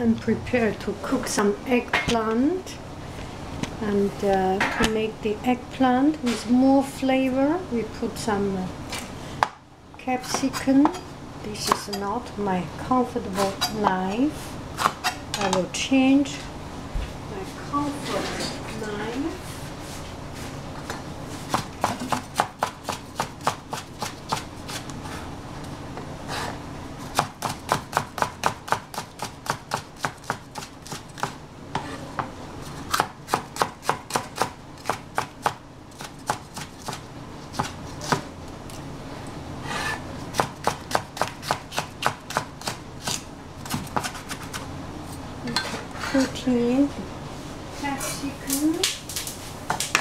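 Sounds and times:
knife chopping on cutting board: 21.5s - 24.8s, 27.2s - 32.3s, 32.9s - 38.3s, 39.8s - 44.6s.

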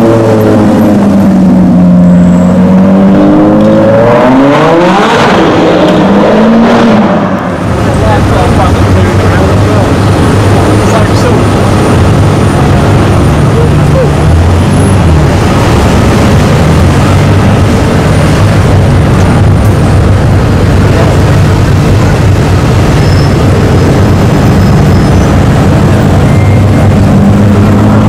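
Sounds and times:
street noise: 0.0s - 28.0s
deep exhaust rumble: 7.4s - 28.0s.

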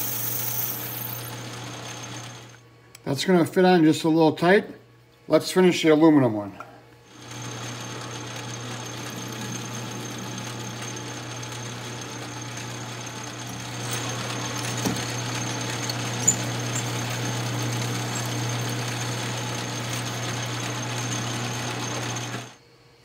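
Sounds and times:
metal lathe drilling workpiece: 0.0s - 2.6s, 7.1s - 22.6s.

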